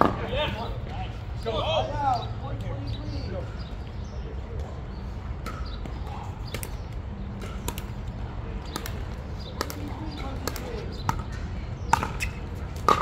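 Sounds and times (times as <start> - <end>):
pickleball paddle hits: 7.4 - 7.9, 8.7 - 13.0
balls bouncing on hard court: 8.6 - 13.0.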